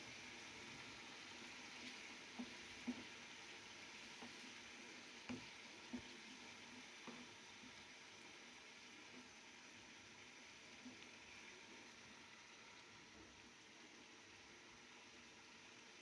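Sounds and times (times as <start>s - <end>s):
curry sizzling in a metal pan: 0.0s - 16.0s
wooden spatula knocking on pan: 5.2s - 6.2s.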